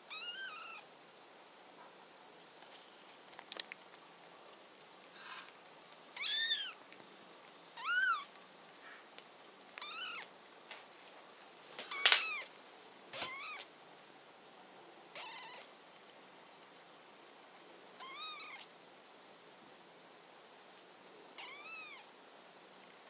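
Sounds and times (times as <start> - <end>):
kitten mewing: 6.2 - 6.8, 7.8 - 8.3, 9.8 - 10.3, 11.9 - 12.5, 13.2 - 13.7, 15.1 - 15.7, 18.0 - 18.7, 21.4 - 22.1.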